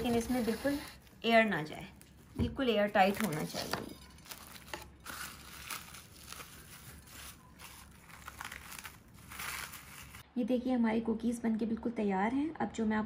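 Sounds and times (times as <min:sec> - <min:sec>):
plastic cling wrap crinkling: 0:00.0 - 0:10.2.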